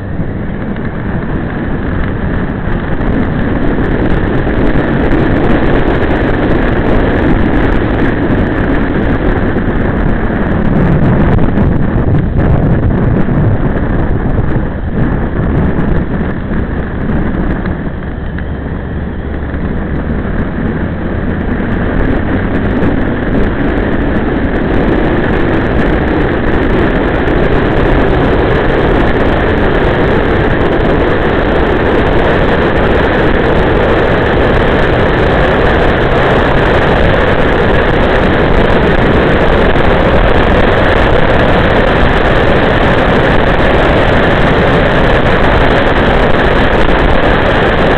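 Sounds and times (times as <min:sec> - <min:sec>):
motorcycle engine: 0:00.0 - 0:47.9
wind rush: 0:00.0 - 0:47.9.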